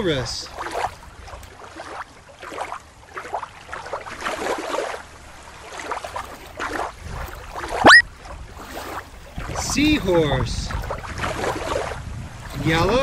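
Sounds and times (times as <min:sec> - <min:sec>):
shallow water lapping: 0:00.0 - 0:13.0
toy splashing into water: 0:07.8 - 0:08.0.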